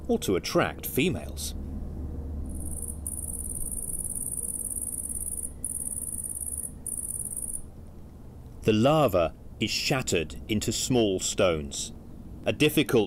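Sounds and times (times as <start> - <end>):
cricket trilling: 2.5 - 7.7.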